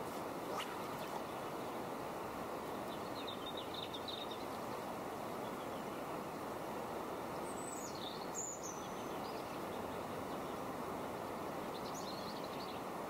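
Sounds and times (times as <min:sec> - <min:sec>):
flowing river water: 0:00.0 - 0:07.6.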